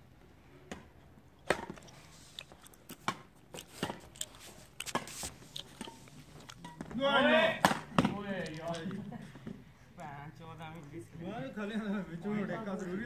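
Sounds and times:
rackets hitting shuttlecock: 0:06.6 - 0:08.3.

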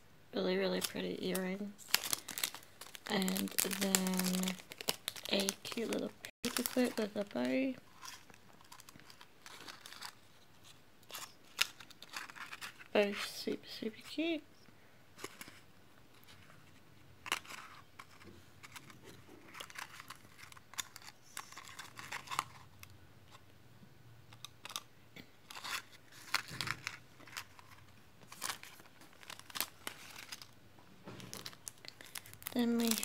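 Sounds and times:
plastic sleeve crinkling: 0:00.6 - 0:13.1, 0:17.2 - 0:22.9, 0:25.4 - 0:33.0.

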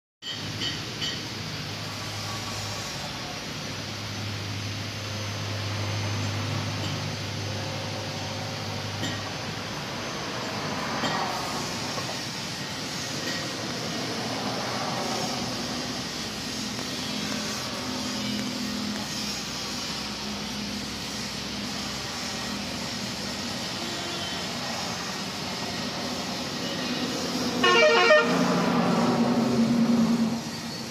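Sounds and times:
vehicle engines running: 0:00.2 - 0:30.9
vehicle passing by: 0:09.8 - 0:19.2, 0:24.4 - 0:30.9.

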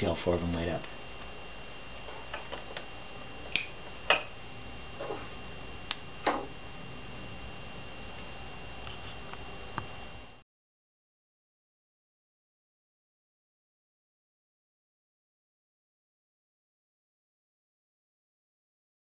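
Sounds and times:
faint high whine: 0:00.0 - 0:10.4
steady background hiss: 0:00.0 - 0:10.4.

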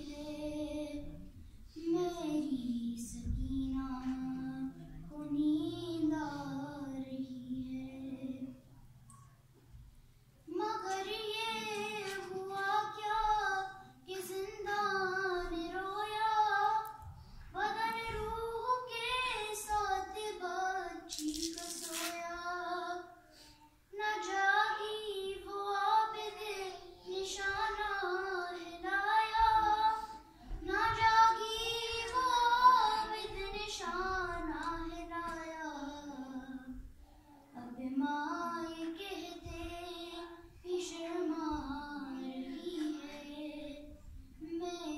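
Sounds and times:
woman singing unaccompanied: 0:02.1 - 0:08.6, 0:10.5 - 0:16.9, 0:37.6 - 0:44.9.

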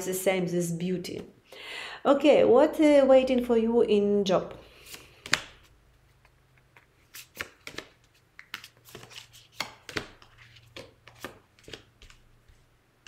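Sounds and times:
cards tapping and snapping: 0:04.8 - 0:12.2.

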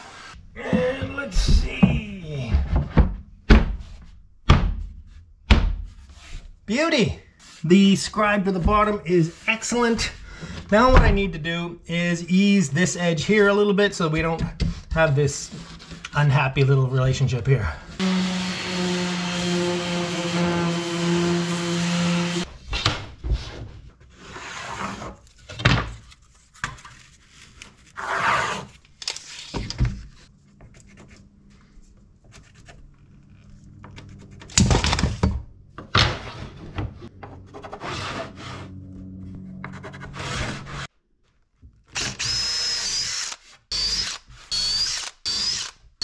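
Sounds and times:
wood and tools knocking and scraping: 0:00.6 - 0:06.6, 0:18.0 - 0:27.0, 0:29.4 - 0:38.8.

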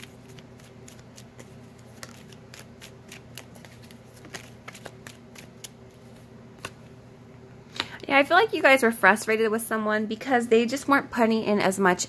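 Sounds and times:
cards being shuffled: 0:00.0 - 0:06.9.

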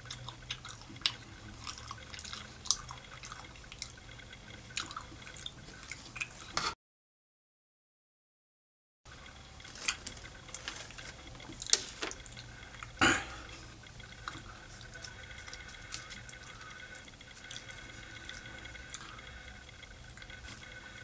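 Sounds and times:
chewing mouth clicks and smacks: 0:00.0 - 0:04.0, 0:04.7 - 0:06.6.

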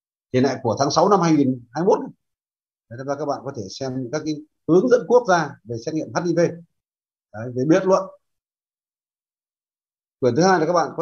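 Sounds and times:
man speaking: 0:00.3 - 0:02.2, 0:02.9 - 0:08.4, 0:10.2 - 0:11.0.

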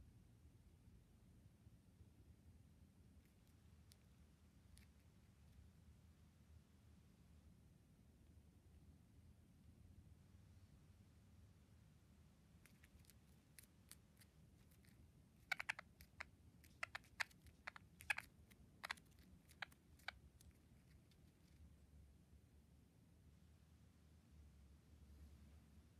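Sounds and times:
bird beak pecking plastic: 0:12.6 - 0:21.6.

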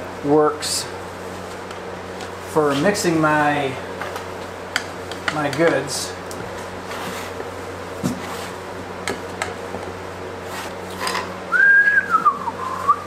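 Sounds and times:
high whistled tone: 0:11.5 - 0:13.0.

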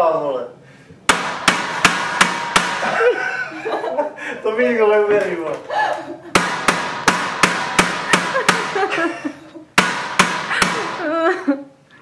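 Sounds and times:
hammer knocking on glass bulbs: 0:01.1 - 0:03.0, 0:06.3 - 0:09.0, 0:09.8 - 0:11.0.

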